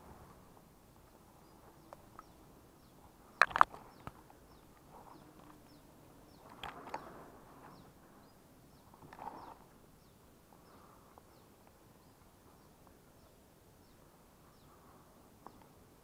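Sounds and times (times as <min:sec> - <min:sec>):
bird chirping: 0:01.0 - 0:15.9
sharp cracks: 0:03.4 - 0:04.2.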